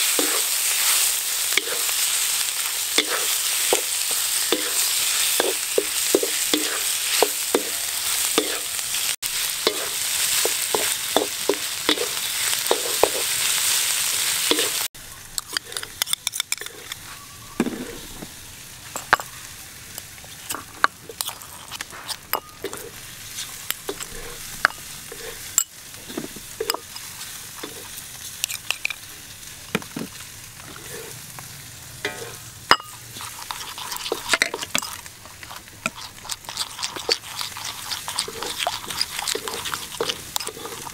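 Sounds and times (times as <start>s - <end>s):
food sizzling in a wok: 0.0s - 40.9s
wooden spatula scraping a pan: 0.1s - 1.9s, 21.8s - 24.5s, 25.1s - 28.0s, 30.6s - 31.2s, 32.1s - 32.5s, 36.9s - 40.9s
metal spoon tapping ceramic bowl: 32.1s - 33.0s.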